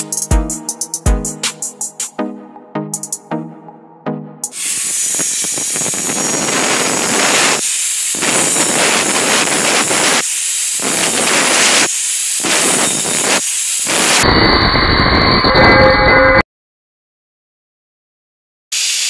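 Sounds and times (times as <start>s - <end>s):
steady noise: 4.4s - 15.5s
angle grinder cutting metal tube: 4.4s - 16.4s.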